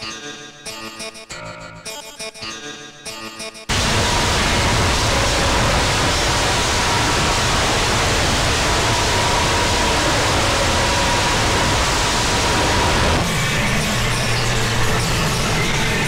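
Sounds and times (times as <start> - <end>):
loud steady hiss: 3.7 - 16.0.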